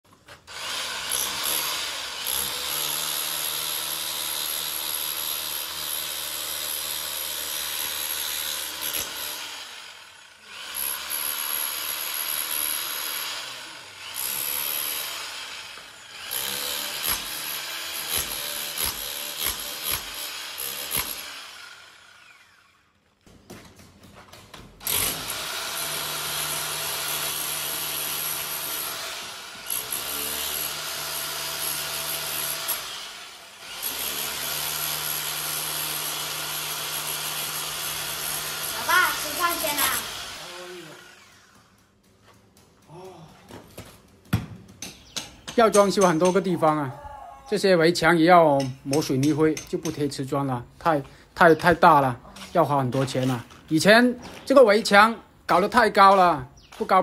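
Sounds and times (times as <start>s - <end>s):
rotary hammer chipping plaster: 16.3s - 21.3s.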